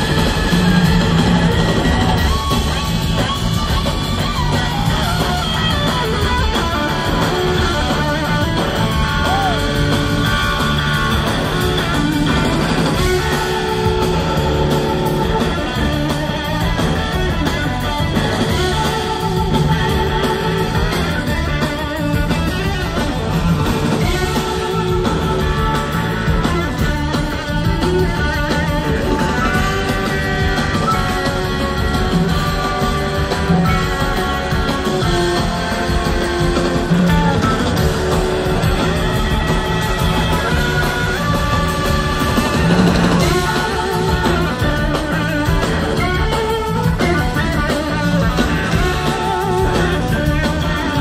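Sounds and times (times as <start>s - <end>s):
bass guitar: 0.0s - 51.0s
drum kits: 0.0s - 51.0s
electric guitar: 0.0s - 51.0s
keyboards: 0.0s - 51.0s.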